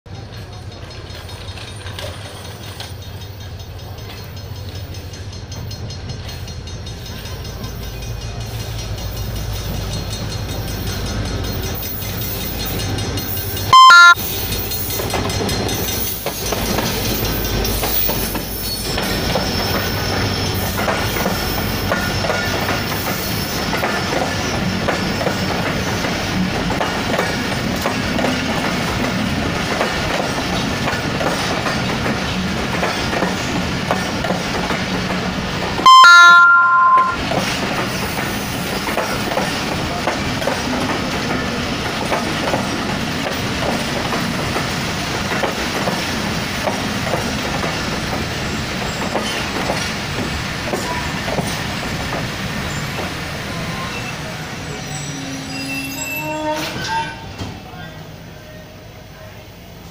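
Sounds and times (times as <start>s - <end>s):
train wheels clacking on rails: 0.1s - 36.1s, 36.9s - 55.3s
train wheels squealing: 0.2s - 26.4s, 52.6s - 57.6s
loud train horn blast: 13.7s - 14.2s, 35.8s - 37.2s, 55.1s - 57.4s.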